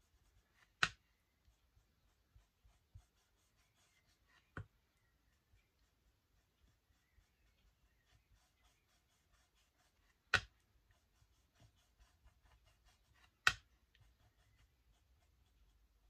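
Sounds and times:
brush tapping: 0.0 - 16.0.

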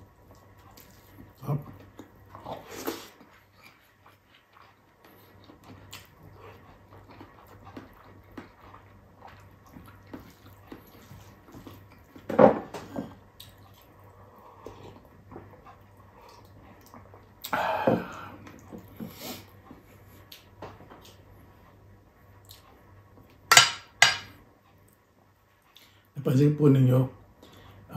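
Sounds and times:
wet chewing: 0.1 - 12.3.

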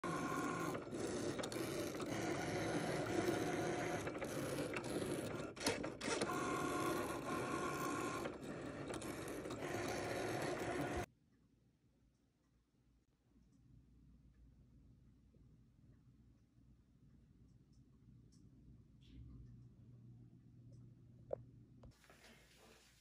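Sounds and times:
cutting machine motors whirring: 0.0 - 11.1.

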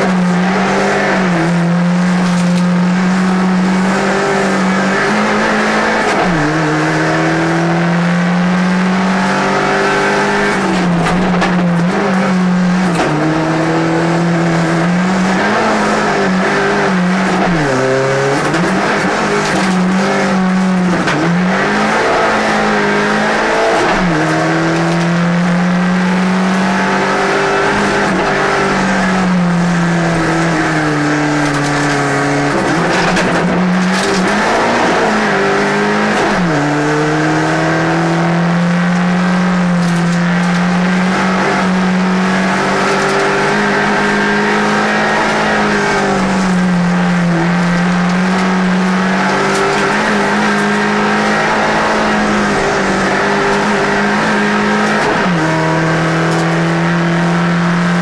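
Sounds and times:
race car engine revving: 0.0 - 58.0.

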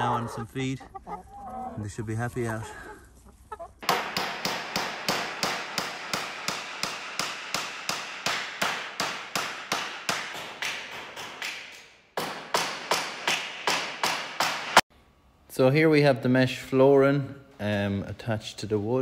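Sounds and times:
hammer blows on staples: 3.8 - 14.8.

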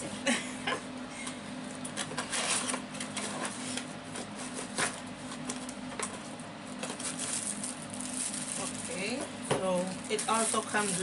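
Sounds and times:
cardboard rustling and scraping: 2.0 - 9.2.

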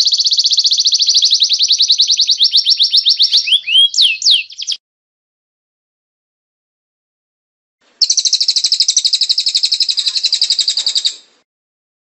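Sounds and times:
songbird trilling: 0.0 - 4.8, 8.0 - 11.3.

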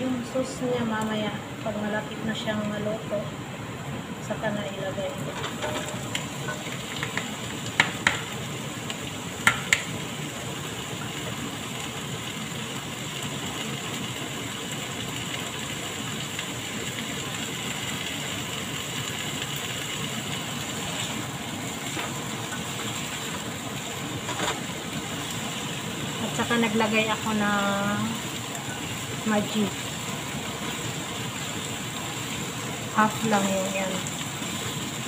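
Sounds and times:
food sizzling in frying pan: 0.0 - 35.0
colander knocking on pan: 5.4 - 8.4, 9.4 - 9.9.

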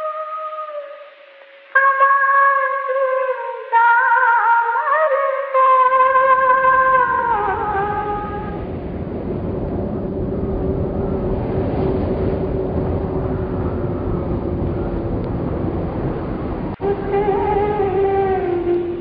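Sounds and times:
woman singing: 0.0 - 1.1, 1.7 - 8.6, 16.8 - 19.0
low rumbling rush of noise: 6.0 - 19.0.

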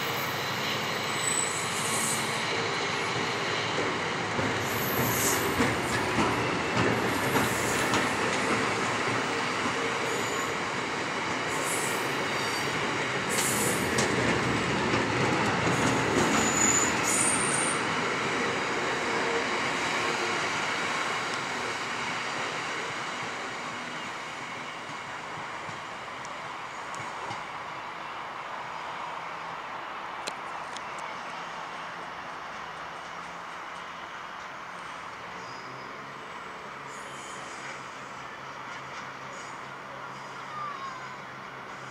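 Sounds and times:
high-pitched wheel squeals: 0.0 - 2.4, 16.3 - 17.8
train wheels clattering on rails: 2.5 - 23.8.

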